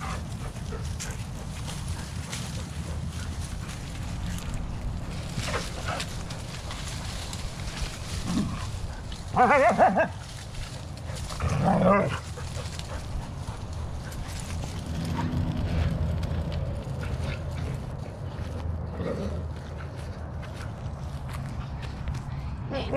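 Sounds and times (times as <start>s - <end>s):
dog play calls: 0.0s - 15.5s
steady low rumble: 0.0s - 22.9s.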